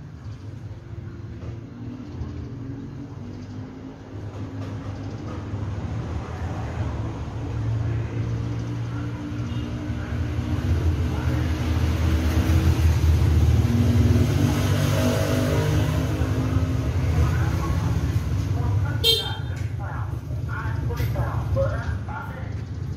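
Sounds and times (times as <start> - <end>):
road traffic engine rumble: 0.0 - 22.9.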